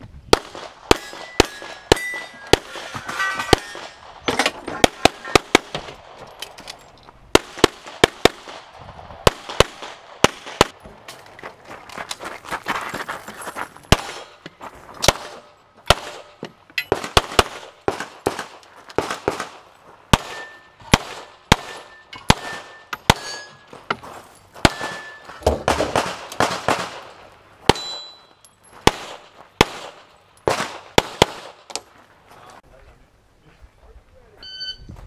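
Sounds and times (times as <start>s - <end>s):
pistol shots: 0.3s - 6.2s, 7.3s - 10.8s, 13.9s - 14.4s, 15.0s - 23.4s, 24.6s - 28.2s, 28.8s - 31.7s
thin ringing tone: 27.8s - 28.6s, 34.4s - 34.9s.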